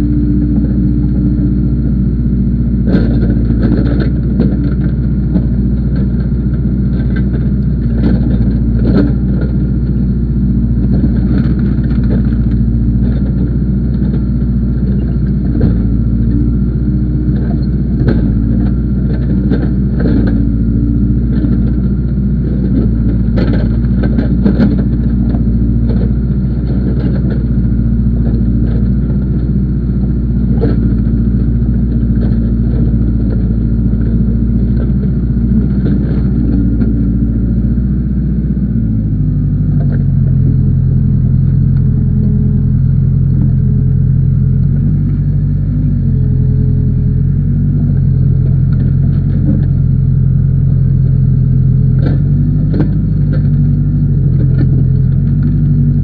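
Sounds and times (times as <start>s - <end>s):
backhoe diesel engine running: 0.0s - 56.0s
clanks and knocks from bucket: 22.7s - 27.4s, 31.9s - 34.1s.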